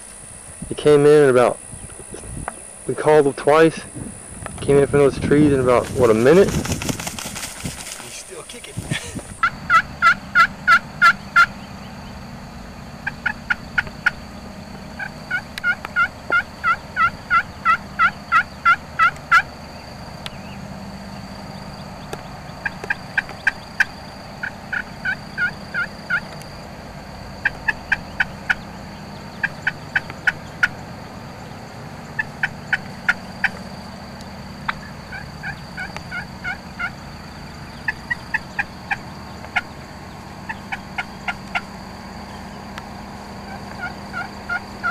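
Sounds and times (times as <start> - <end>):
turkey yelping: 8.5 - 11.6, 13.0 - 14.2, 15.0 - 19.5, 22.6 - 26.4, 27.4 - 30.9, 32.1 - 33.6, 34.6 - 37.0, 37.7 - 39.8, 40.4 - 41.7, 43.4 - 44.9.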